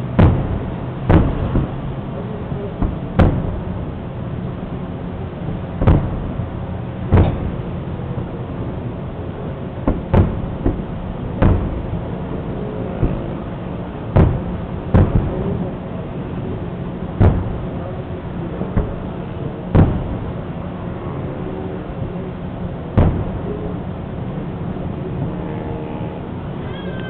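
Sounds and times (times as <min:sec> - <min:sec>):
firework shells booming: 0:00.0 - 0:03.9, 0:05.4 - 0:08.0, 0:09.8 - 0:17.8, 0:18.5 - 0:20.6, 0:22.9 - 0:23.8
low background hum: 0:00.0 - 0:27.0.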